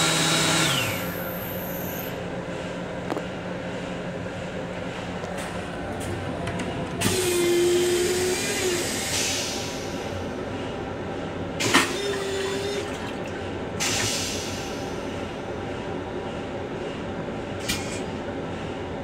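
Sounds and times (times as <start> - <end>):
train low rumble: 0.0 - 19.0
flush mechanism humming: 11.7 - 14.0.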